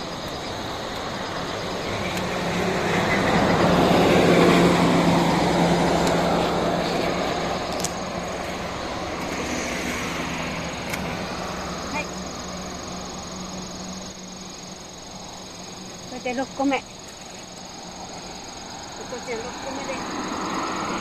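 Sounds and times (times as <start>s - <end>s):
vehicle passing by: 0.0s - 21.0s.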